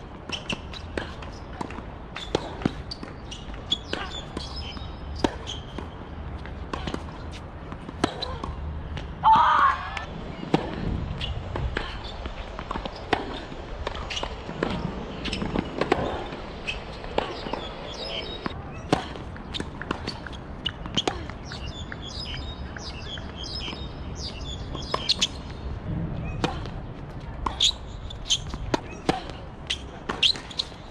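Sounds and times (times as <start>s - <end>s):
tennis ball hit by racket: 27.4s - 30.7s.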